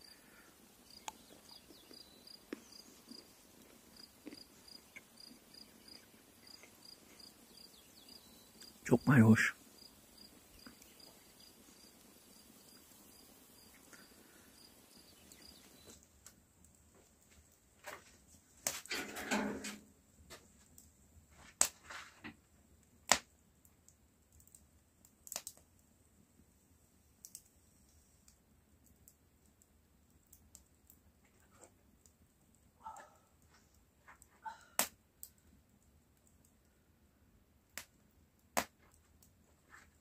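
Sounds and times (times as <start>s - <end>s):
cricket chirping: 3.9s - 9.1s, 9.7s - 15.9s.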